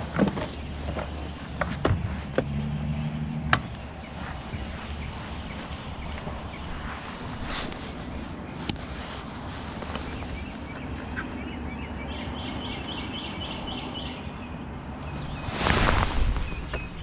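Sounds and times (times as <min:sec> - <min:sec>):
low outdoor background: 0:00.0 - 0:17.0
bird chirping: 0:00.4 - 0:08.7, 0:09.8 - 0:17.0.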